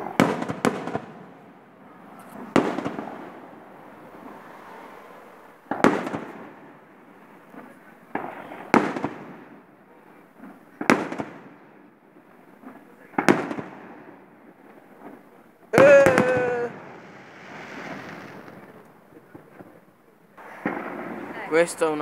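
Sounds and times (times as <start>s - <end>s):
firework shells bursting: 0.0s - 9.6s, 12.6s - 19.8s.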